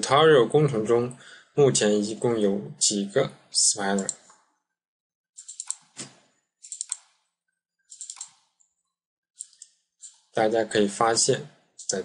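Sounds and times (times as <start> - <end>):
mouse and keyboard clicks: 5.4 - 7.2, 7.9 - 8.6, 9.4 - 10.3.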